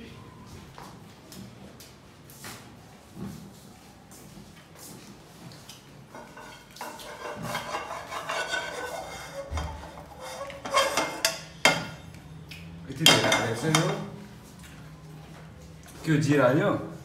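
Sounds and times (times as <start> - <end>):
metal utensils clinking and scraping: 6.1 - 12.0, 13.0 - 14.1.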